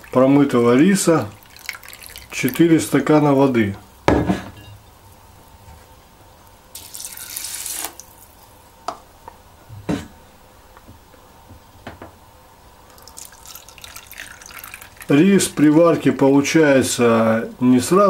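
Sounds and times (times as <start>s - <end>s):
water pouring into a bowl: 0.0s - 2.9s, 6.8s - 8.4s, 12.9s - 15.8s.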